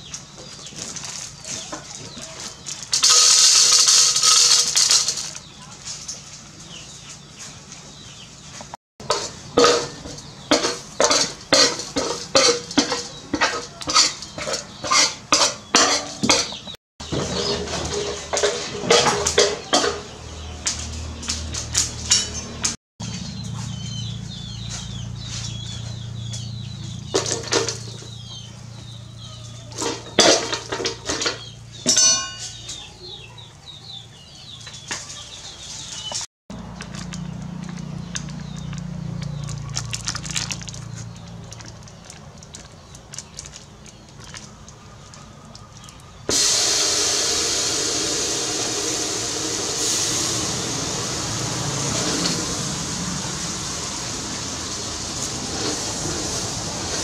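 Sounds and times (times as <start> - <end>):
metal ladle clinking on pot: 9.0 - 16.6, 17.2 - 20.1, 29.8 - 32.6.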